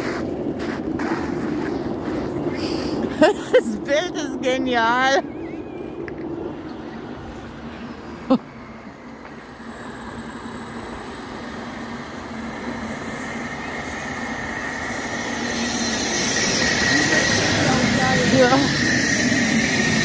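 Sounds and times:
jet turbine whining: 0:00.0 - 0:20.0.

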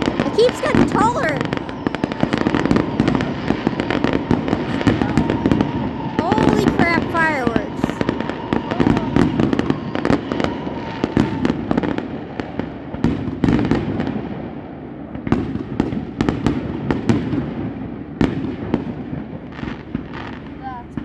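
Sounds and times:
fireworks whistle: 0:00.0 - 0:14.1
fireworks bangs: 0:00.0 - 0:21.0
fireworks crackling: 0:00.0 - 0:21.0.

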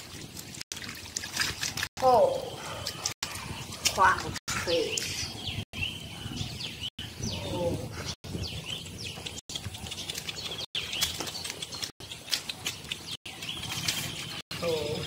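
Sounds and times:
small birds chirping: 0:02.0 - 0:15.0.

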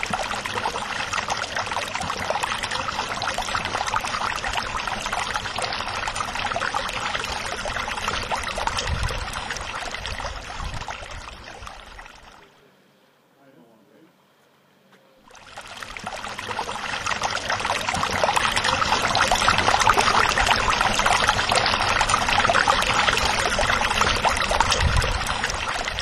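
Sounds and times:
water splashing and trickling: 0:00.0 - 0:12.6, 0:15.3 - 0:26.0.

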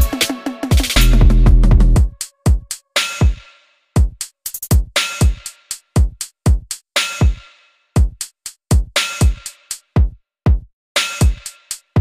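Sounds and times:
electronic music with drum-machine beat: 0:00.0 - 0:12.0
deep kick drums: 0:00.7 - 0:02.7, 0:10.0 - 0:10.7.

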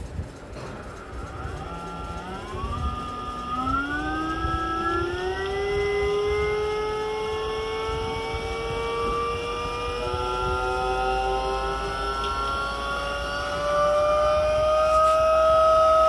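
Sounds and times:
electric motor whine: 0:00.0 - 0:16.0.

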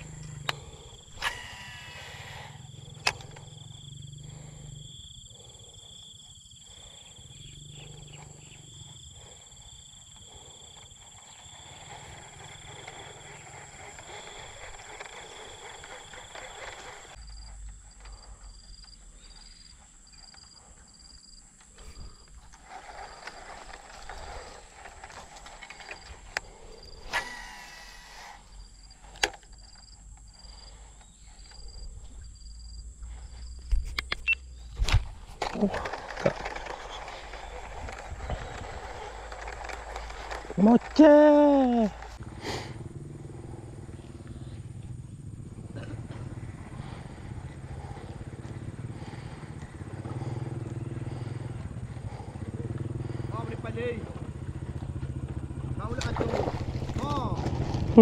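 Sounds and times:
fishing reel spool whine: 0:00.0 - 0:33.7, 0:34.3 - 0:57.3
insects trilling: 0:00.0 - 0:58.0
fishing reel spool click: 0:00.2 - 0:03.5, 0:25.8 - 0:28.4.

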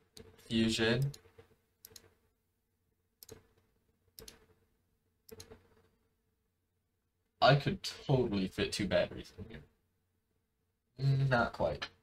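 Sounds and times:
faint computer mouse clicks: 0:01.0 - 0:02.1, 0:04.2 - 0:04.5, 0:05.3 - 0:05.6.

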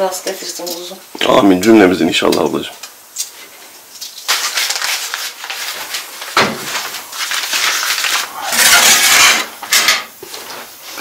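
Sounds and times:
meat slices sizzling in a pan: 0:07.1 - 0:11.0.

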